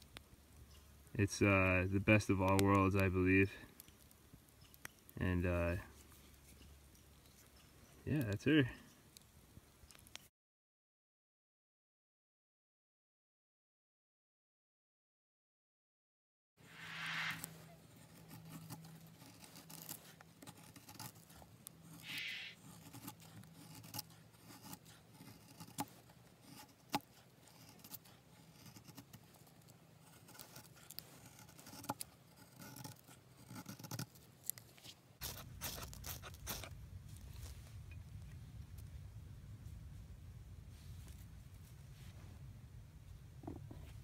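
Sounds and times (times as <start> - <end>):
knife scraping along wood: 16.8 - 36.7.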